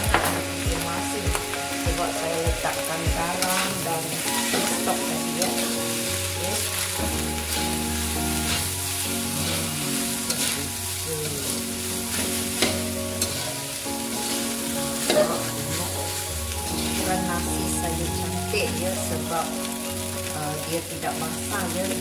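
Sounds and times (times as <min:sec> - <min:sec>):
rice sizzling: 0:00.0 - 0:22.0
spatula scraping wok: 0:00.0 - 0:22.0
spatula clinking against wok: 0:12.1 - 0:13.5.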